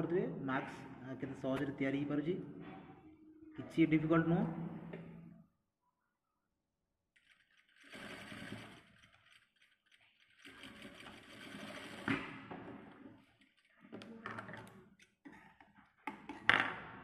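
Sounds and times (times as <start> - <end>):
sewing machine stitching: 7.2 - 13.4.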